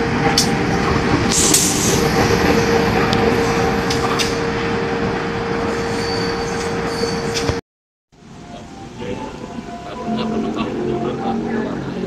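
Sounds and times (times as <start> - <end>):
locomotive engine passing: 8.2 - 12.0.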